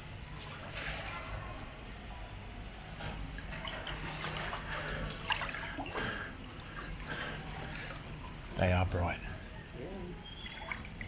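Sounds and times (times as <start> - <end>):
pool water lapping and dripping: 0.0 - 11.0.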